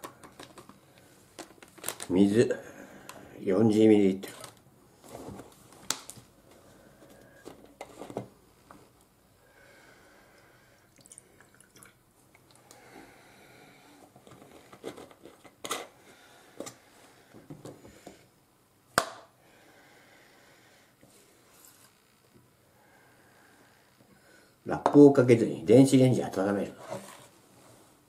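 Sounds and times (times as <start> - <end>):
water trickling into cup: 10.9 - 12.0.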